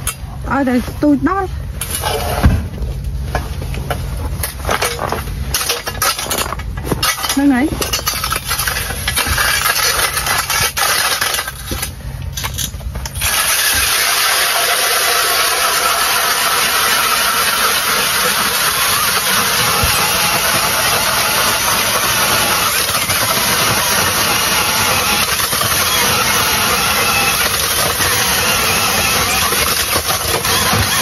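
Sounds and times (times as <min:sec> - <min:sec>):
knocks and scrapes: 0:01.8 - 0:13.9
ice auger motor running: 0:13.2 - 0:31.0.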